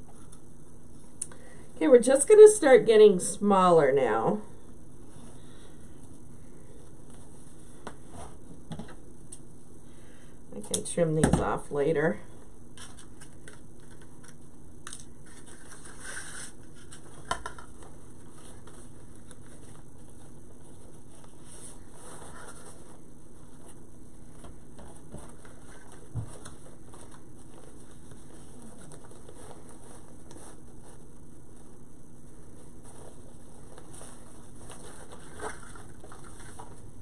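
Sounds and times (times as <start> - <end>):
ribbon rustling and crinkling: 15.0 - 36.9.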